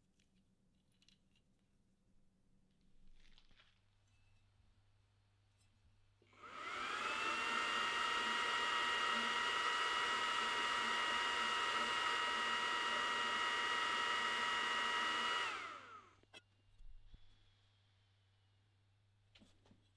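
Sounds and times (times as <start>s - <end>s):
cooling fan whirring: 6.4s - 16.1s.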